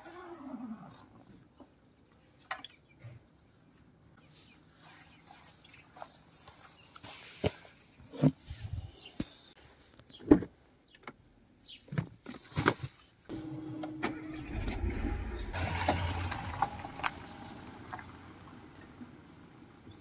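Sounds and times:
car engine running: 0:13.3 - 0:20.0.

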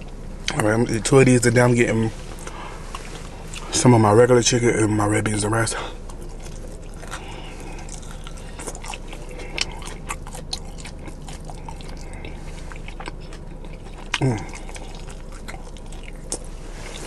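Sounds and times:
man chewing with wet smacks: 0:02.3 - 0:03.8, 0:05.9 - 0:17.0.

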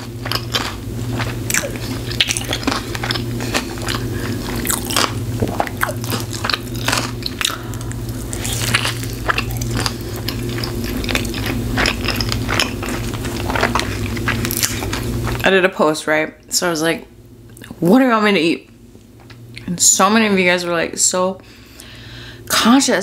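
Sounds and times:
person chewing food: 0:00.0 - 0:15.4
steady low hum: 0:00.0 - 0:23.0.

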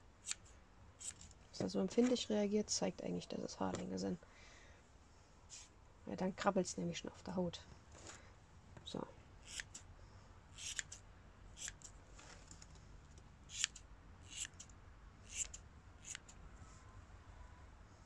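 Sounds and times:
scissors snipping fur: 0:00.2 - 0:01.3, 0:10.6 - 0:11.0, 0:13.5 - 0:14.7, 0:15.3 - 0:16.4.

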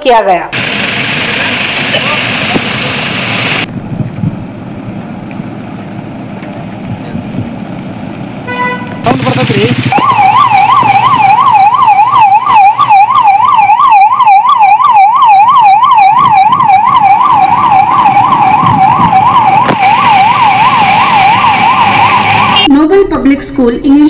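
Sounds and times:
ambulance siren yelping: 0:08.5 - 0:22.7.

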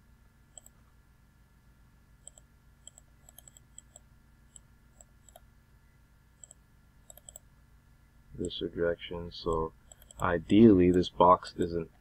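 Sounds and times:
low steady hum: 0:00.0 - 0:12.0
faint computer mouse clicks: 0:00.5 - 0:00.8, 0:02.2 - 0:05.4, 0:06.4 - 0:07.4, 0:09.5 - 0:11.1.

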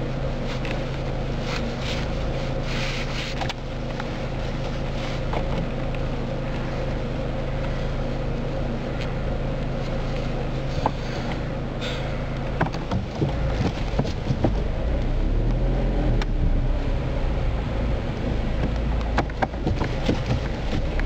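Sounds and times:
car engine and road hum: 0:00.0 - 0:21.0
light clicks and knocks: 0:12.4 - 0:15.1, 0:18.6 - 0:21.0.

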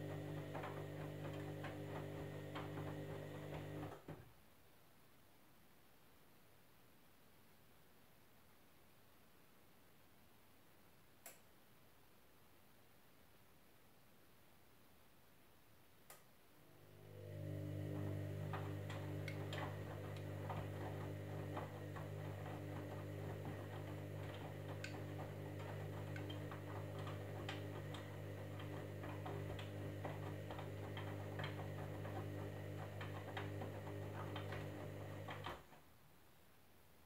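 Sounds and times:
washing machine motor hum: 0:00.0 - 0:04.2, 0:16.6 - 0:35.8.

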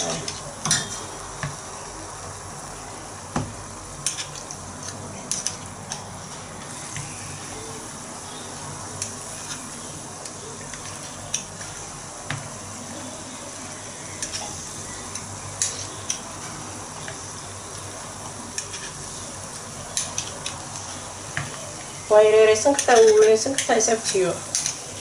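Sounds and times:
hot oil sizzling: 0:00.0 - 0:25.0.

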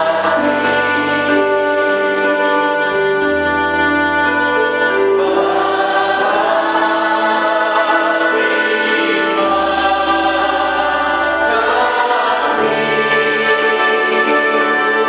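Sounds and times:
group singing worship song: 0:00.0 - 0:15.0
instrumental accompaniment: 0:00.0 - 0:15.0.

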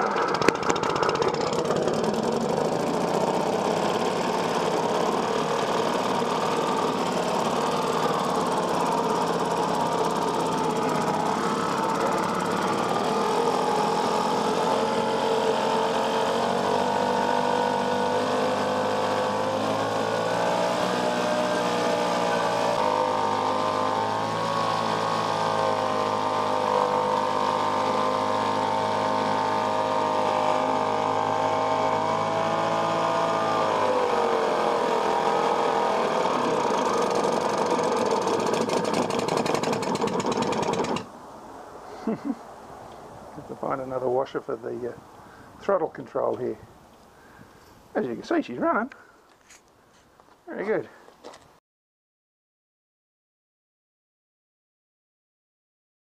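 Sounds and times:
outboard motor running in water: 0:00.0 - 0:41.1.

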